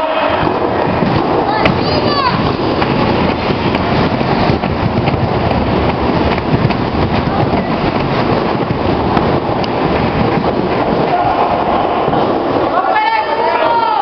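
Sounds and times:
loud crowd noise: 0:00.0 - 0:03.4, 0:09.9 - 0:14.0.

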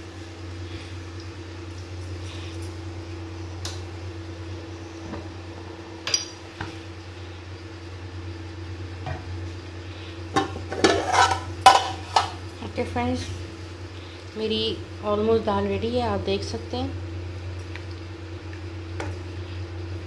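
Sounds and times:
steady low hum: 0:00.0 - 0:20.0
metal lid clatter: 0:10.4 - 0:12.4.

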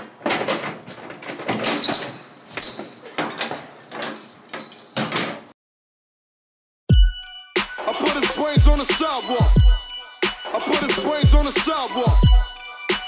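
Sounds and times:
door clicks knocks and rattles: 0:00.0 - 0:02.0, 0:03.1 - 0:05.6
door squeak: 0:00.0 - 0:05.6.

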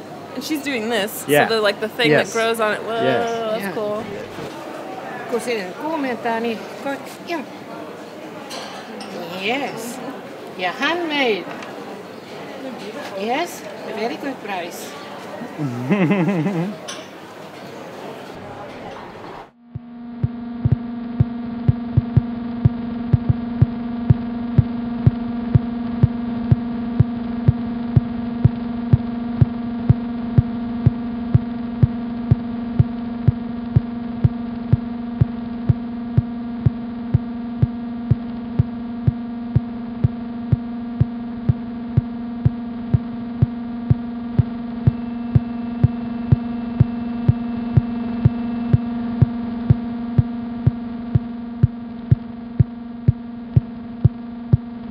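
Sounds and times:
droning chord with soft pulse: 0:19.6 - 0:54.9.

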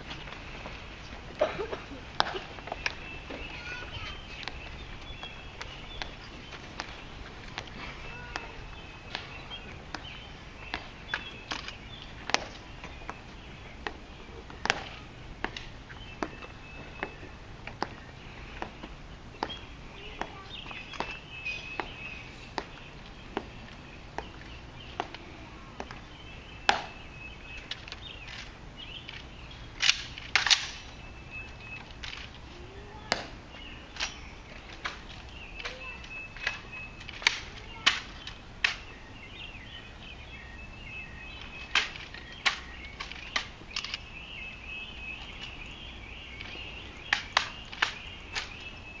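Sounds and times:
marching shoes clicking on stone: 0:00.0 - 0:39.5, 0:41.3 - 0:49.0
rifle clacks: 0:29.8 - 0:30.8, 0:41.7 - 0:44.0.

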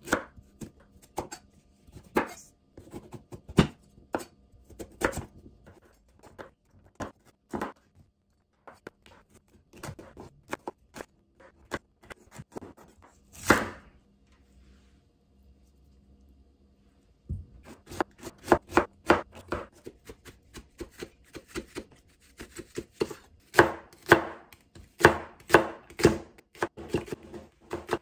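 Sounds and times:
knife chopping on wooden board: 0:02.0 - 0:07.8, 0:09.7 - 0:13.9, 0:17.6 - 0:28.0.

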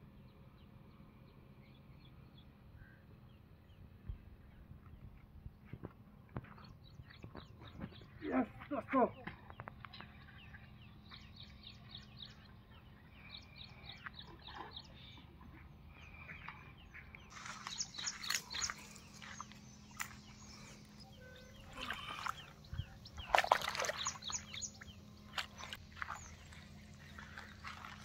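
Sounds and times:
bird chirping: 0:00.1 - 0:28.0
fish splashing and thrashing: 0:17.3 - 0:21.0, 0:21.6 - 0:28.0.

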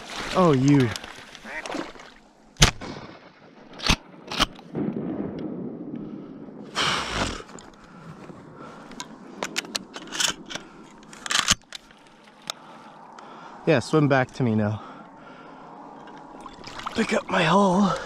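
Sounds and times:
shotgun firing: 0:02.6 - 0:05.8.

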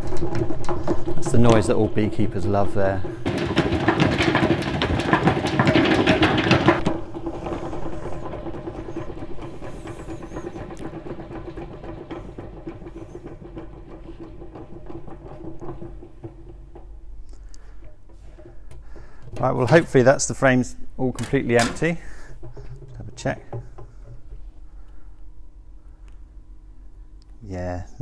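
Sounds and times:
honey extractor whirring: 0:00.0 - 0:25.7
honey spattering against metal drum: 0:03.0 - 0:20.2.

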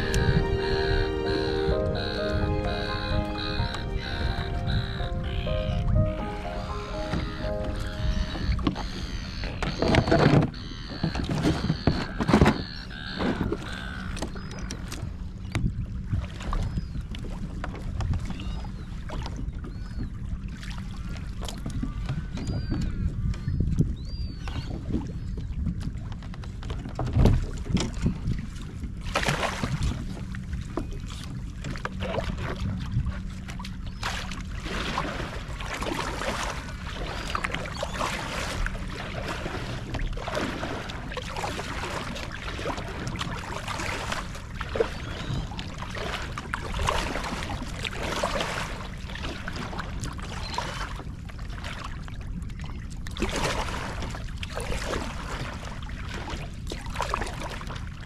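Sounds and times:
water splashing: 0:00.0 - 0:13.7, 0:31.0 - 0:58.0
low water rumble: 0:00.0 - 0:58.0.

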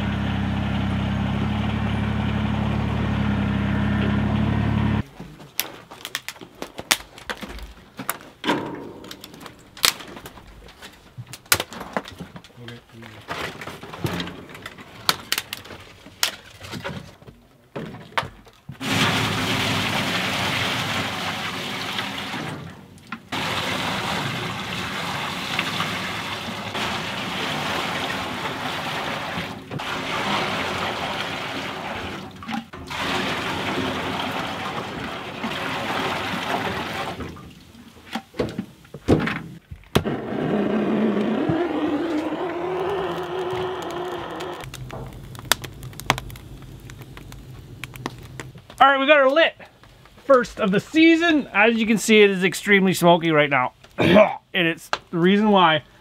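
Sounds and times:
sap splashing into a pan: 0:18.8 - 0:38.4
propane torch being lit: 0:41.2 - 0:48.8
firewood knocking: 0:44.6 - 0:48.8.

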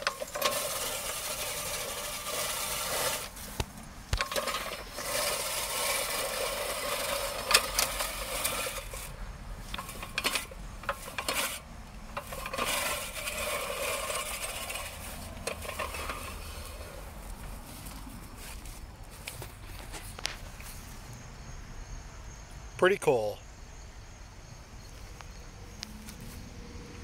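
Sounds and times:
reel mower blades rasping: 0:00.0 - 0:20.8.

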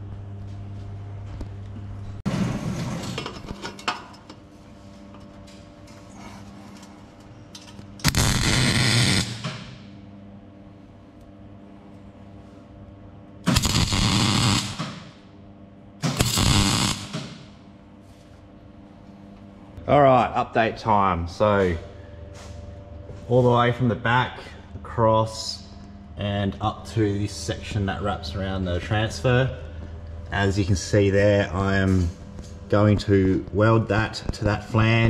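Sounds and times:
low hum: 0:00.0 - 0:35.0
crackling welding arc: 0:08.0 - 0:09.8, 0:13.5 - 0:15.0, 0:16.0 - 0:17.4.

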